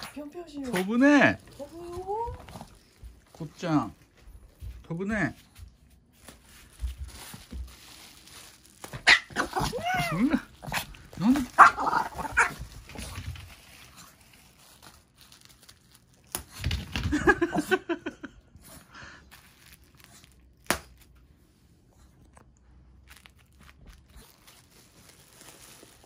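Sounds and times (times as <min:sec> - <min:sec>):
bubble wrap crinkling: 0:00.0 - 0:04.5, 0:05.2 - 0:17.4, 0:19.0 - 0:21.4, 0:22.9 - 0:26.0
bubble wrap pops: 0:06.2 - 0:11.6, 0:14.8 - 0:17.1, 0:19.3 - 0:21.2.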